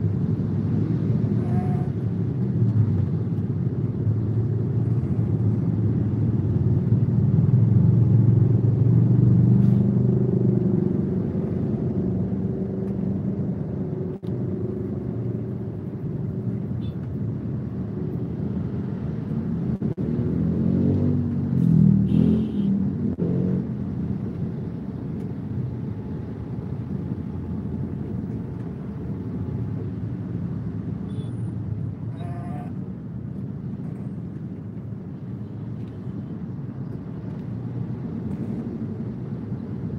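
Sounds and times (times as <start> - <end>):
car engine rumble: 0.0 - 39.9.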